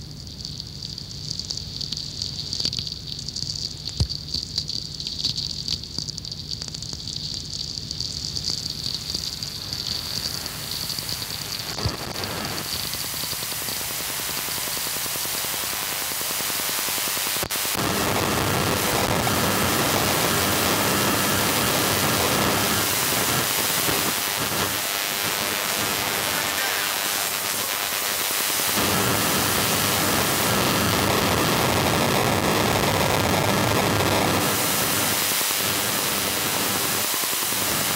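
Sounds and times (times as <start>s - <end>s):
radio crackles and clicks: 8.0s - 37.9s
dense pulsed hiss-buzz: 8.8s - 37.9s.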